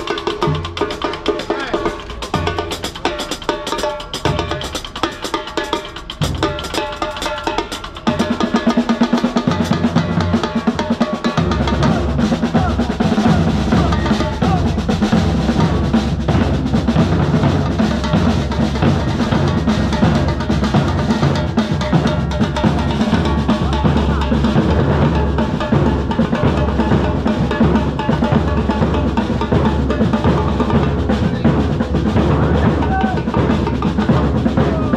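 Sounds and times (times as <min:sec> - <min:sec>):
street drum band: 0:00.0 - 0:34.9
deep bass drums: 0:11.4 - 0:34.9.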